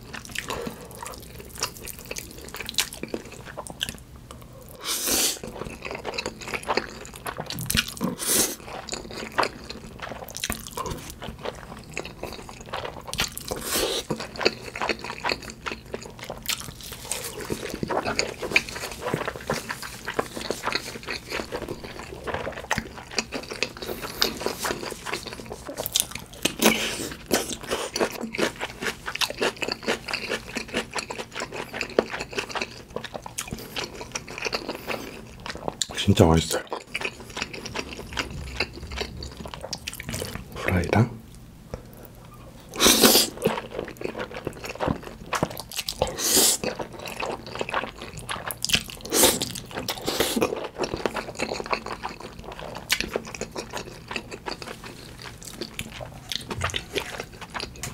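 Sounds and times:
wet chewing and smacking: 0.0 - 4.8, 5.4 - 40.7, 41.8 - 57.9.

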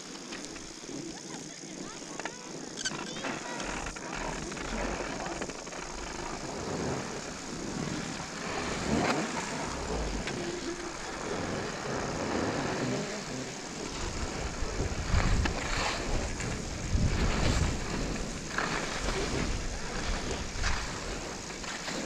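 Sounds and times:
hiss of sliding over snow: 0.0 - 22.0
wind buffeting microphone: 0.1 - 22.0
low rumble: 3.6 - 21.0.

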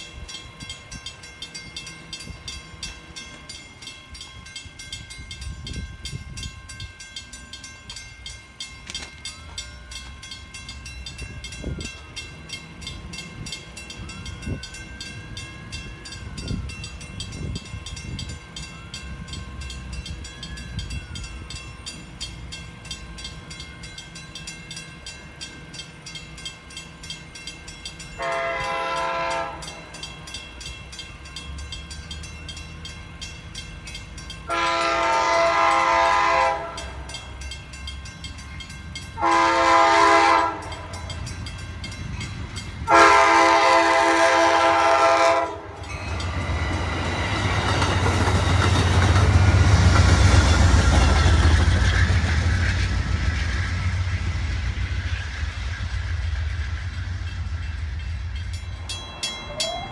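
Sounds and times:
locomotive horn blasts: 28.2 - 29.8, 34.5 - 37.0, 39.2 - 40.9, 42.8 - 45.8.

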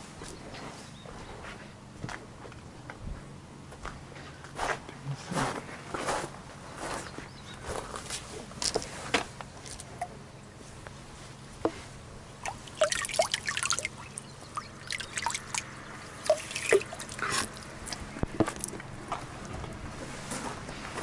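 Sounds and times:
water dripping into stone basin: 12.4 - 18.9.

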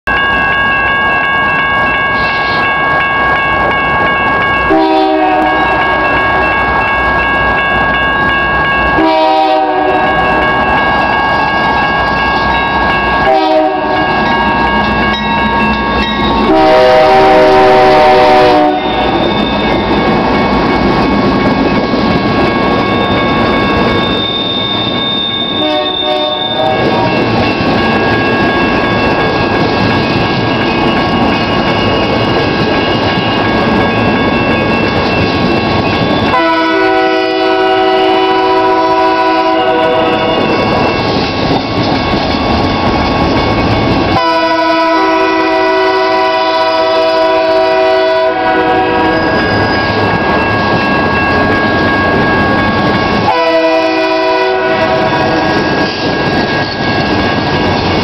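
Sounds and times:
crossing warning bells ringing: 0.0 - 58.0
train rumbling and clacking past: 0.0 - 58.0
locomotive air horn blasts: 4.7 - 5.7, 9.0 - 10.1, 13.3 - 14.0, 16.5 - 19.0, 25.6 - 27.1, 36.3 - 40.3, 44.2 - 49.2, 53.3 - 55.4.

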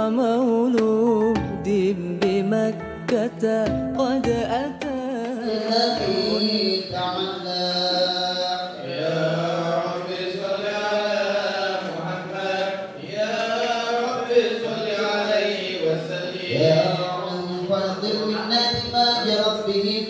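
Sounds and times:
man chanting a hymn: 5.4 - 20.0.

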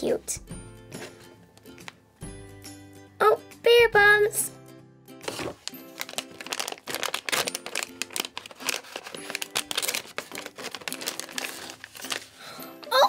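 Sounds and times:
plastic packet crinkling: 5.2 - 12.5.

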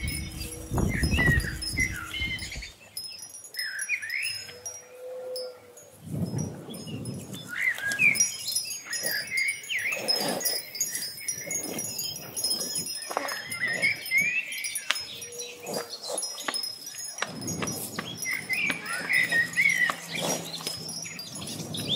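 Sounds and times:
soft low swells: 0.0 - 2.7
high ringing chime tones: 0.0 - 5.6, 8.0 - 21.9.

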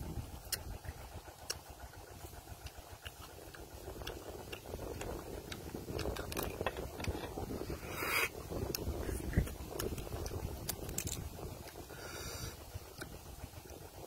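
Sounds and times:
wind rumble on microphone: 0.0 - 14.0
chewing: 0.4 - 13.8
crab shells cracking: 2.6 - 7.5, 8.6 - 11.8.

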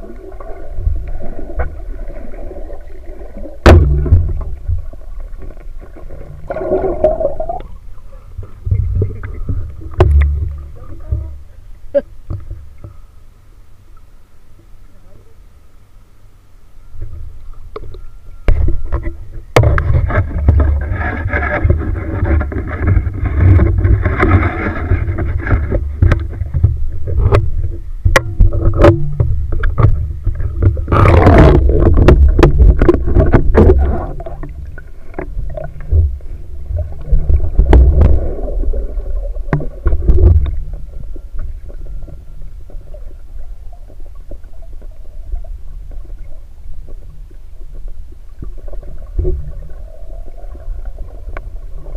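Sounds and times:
underwater water rumble: 0.0 - 15.6, 16.8 - 51.9
sharp clicks and knocks: 9.9 - 11.2, 17.0 - 36.2.

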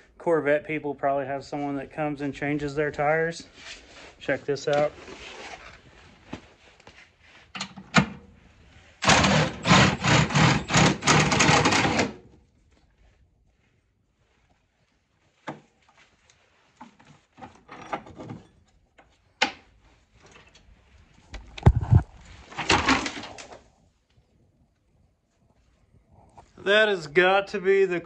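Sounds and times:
rapid mechanical rattling: 9.0 - 12.2.

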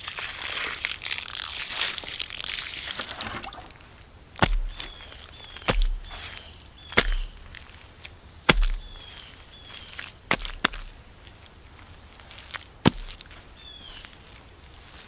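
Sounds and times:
mud squelching scrapes: 0.0 - 15.0
hands slapping wet mud: 4.4 - 7.7, 8.5 - 10.9, 12.4 - 13.4.

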